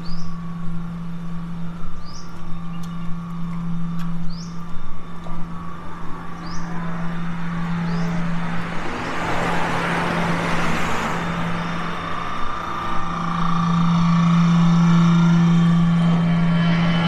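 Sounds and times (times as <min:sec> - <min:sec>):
constant low hum: 0:00.0 - 0:17.0
engine running: 0:00.0 - 0:17.0
vehicle passing: 0:05.1 - 0:17.0.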